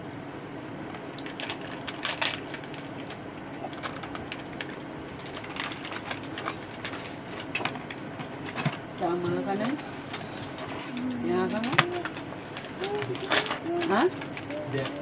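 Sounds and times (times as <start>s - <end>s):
cardboard packaging crackling: 1.2s - 8.0s.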